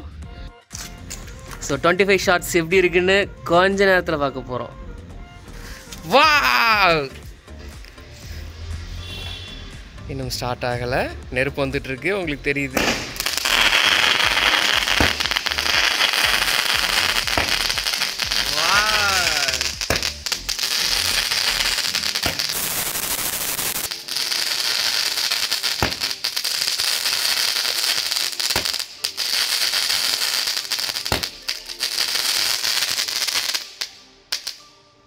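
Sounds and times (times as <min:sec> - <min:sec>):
firework shot cracks: 0:12.7 - 0:34.6
firework crackling: 0:12.7 - 0:34.7.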